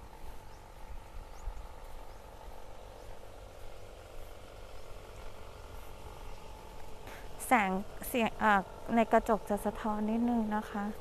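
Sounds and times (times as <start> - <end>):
low rumble on microphone: 0.0 - 8.0
steady background drone: 0.0 - 11.0.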